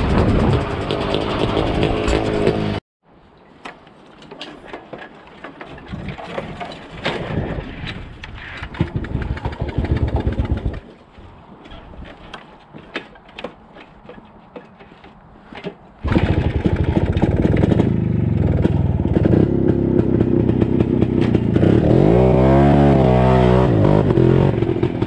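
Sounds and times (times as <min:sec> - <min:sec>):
motorcycle engine running: 0:16.0 - 0:25.0.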